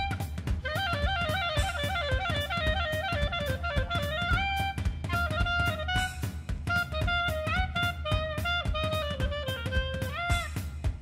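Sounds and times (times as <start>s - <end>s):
sliding melody: 0.0s - 10.9s
steady drum beat: 0.0s - 11.0s.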